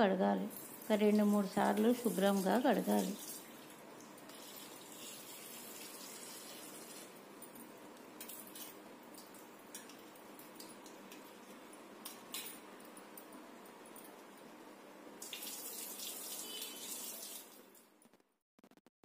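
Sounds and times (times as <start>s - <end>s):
water splashing in hand washing: 0.5s - 7.1s, 15.2s - 17.6s.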